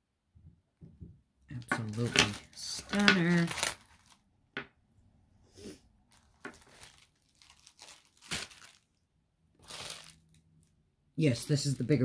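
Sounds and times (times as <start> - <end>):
plastic packaging crinkling and tearing: 1.6 - 4.3, 6.1 - 9.0, 9.6 - 10.7.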